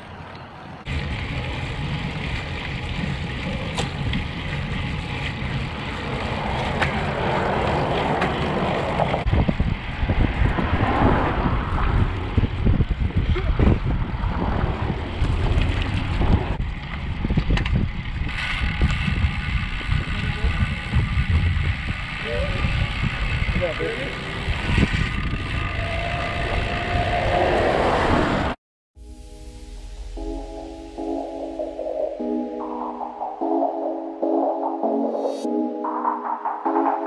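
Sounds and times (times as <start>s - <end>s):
wind buffeting microphone: 7.1s - 28.6s.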